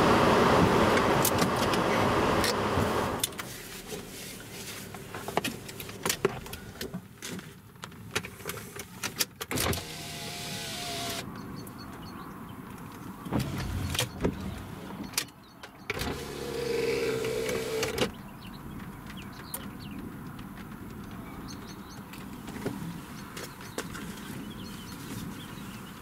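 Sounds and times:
electric window motor whining: 0:09.6 - 0:11.2, 0:13.3 - 0:15.0, 0:16.0 - 0:18.1
window motor stopping clunk: 0:09.6 - 0:11.2, 0:13.3 - 0:15.0, 0:15.9 - 0:18.1
birds chirping: 0:11.0 - 0:20.1, 0:21.2 - 0:26.0
knocks and rumbling in car: 0:13.3 - 0:15.1.

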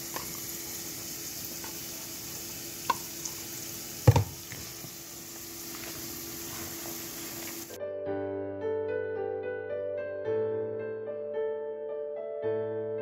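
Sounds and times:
steady hiss: 0:00.0 - 0:07.8.

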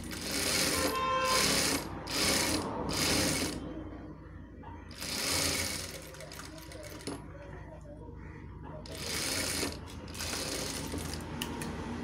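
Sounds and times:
sewing machine stitching: 0:00.0 - 0:03.6, 0:04.9 - 0:07.2, 0:08.8 - 0:11.5.

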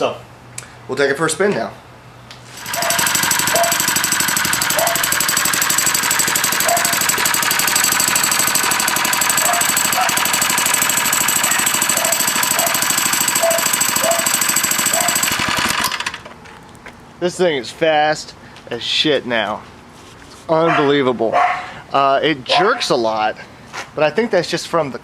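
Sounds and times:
small engine running: 0:02.5 - 0:16.4.

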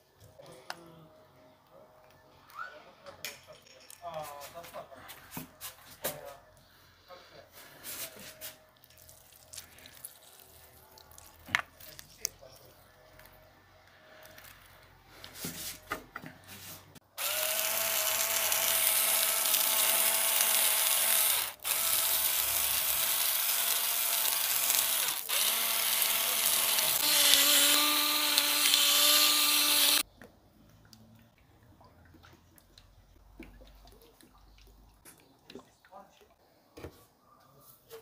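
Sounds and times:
spice grinder motor whirring: 0:17.2 - 0:30.0.

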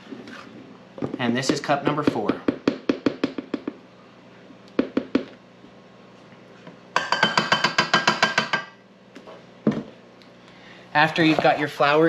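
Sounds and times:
metal cup tapping on steel bowl: 0:07.0 - 0:08.8.

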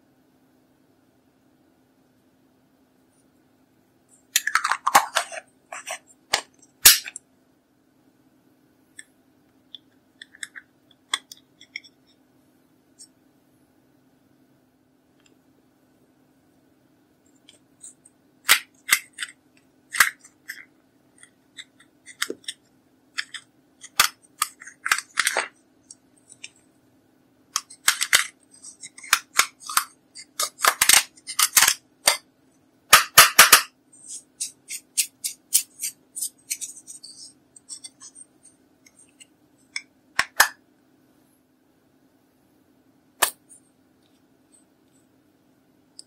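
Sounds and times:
crisp scratches and clicks: 0:27.6 - 0:32.2, 0:34.0 - 0:39.8
metal tool scraping powder: 0:34.0 - 0:38.4.

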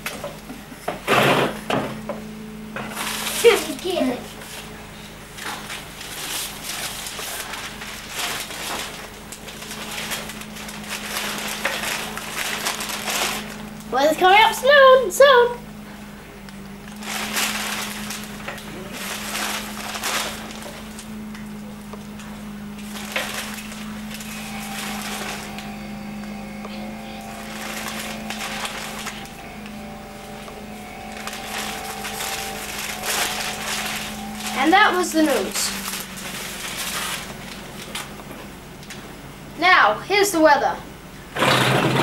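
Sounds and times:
steady low hum: 0:00.0 - 0:41.4
newspaper rustling: 0:02.9 - 0:13.9, 0:16.8 - 0:38.3.

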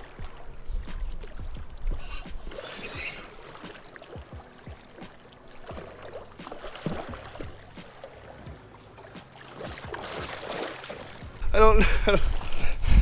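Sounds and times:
fish splashing and thrashing: 0:00.0 - 0:11.4
water lapping on gravel shore: 0:00.0 - 0:11.4.

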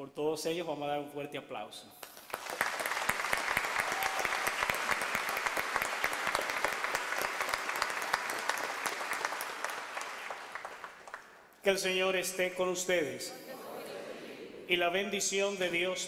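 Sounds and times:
congregation applauding: 0:02.0 - 0:11.5.

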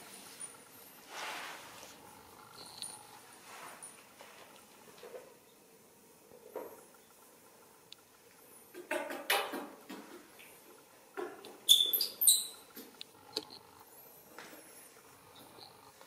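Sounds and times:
baby monkey squeaking and squealing: 0:11.7 - 0:12.6.

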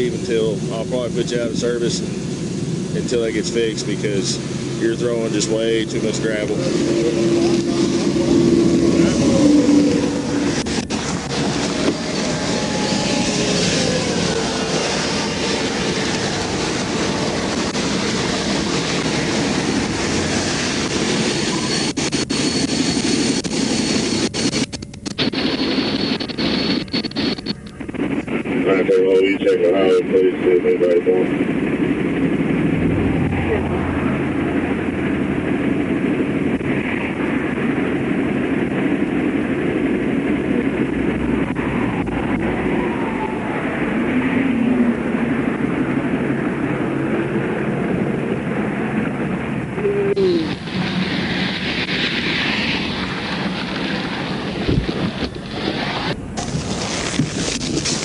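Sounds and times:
roar of highway traffic: 0:00.0 - 0:22.3, 0:27.5 - 0:58.0.

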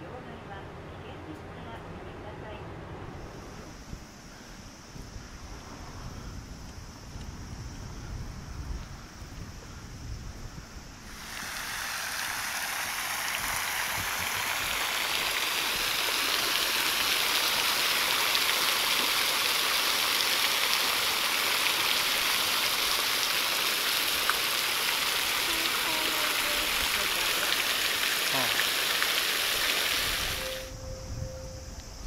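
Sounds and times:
fountain water spraying and splashing: 0:11.0 - 0:30.7.

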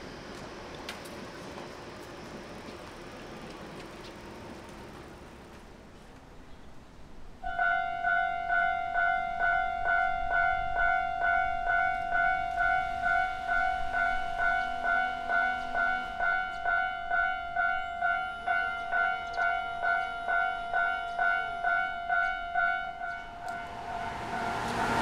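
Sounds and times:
railroad crossing warning bell: 0:07.4 - 0:25.0.

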